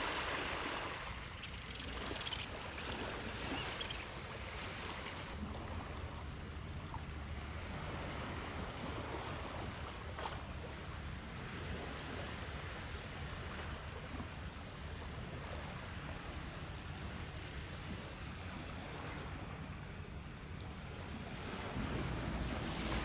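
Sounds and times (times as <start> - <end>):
wind rumble on microphone: 5.2 - 23.0.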